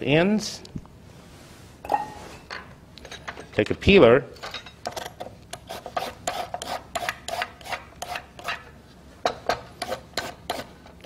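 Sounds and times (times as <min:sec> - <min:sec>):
vegetable peeler scraping carrot: 0:05.5 - 0:08.6, 0:09.8 - 0:10.8.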